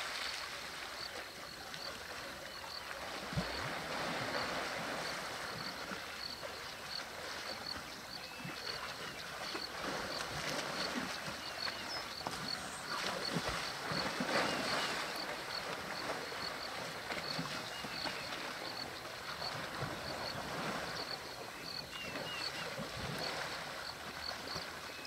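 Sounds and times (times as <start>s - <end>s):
water sloshing and splashing: 0.0s - 25.0s.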